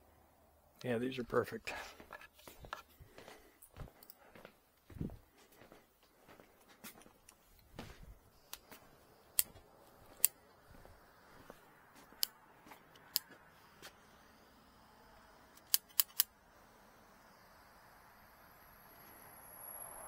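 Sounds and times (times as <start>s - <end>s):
hand tool clicking: 10.2s - 10.4s, 13.0s - 13.3s, 15.6s - 16.3s.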